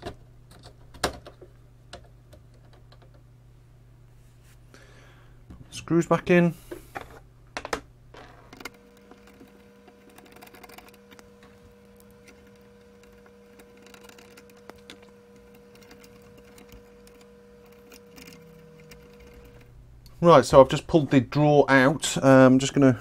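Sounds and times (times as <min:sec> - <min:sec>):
faint steady hum: 0:00.0 - 0:23.0
handling small parts: 0:06.6 - 0:20.2
screwdriver clicks and creaks: 0:08.5 - 0:20.2.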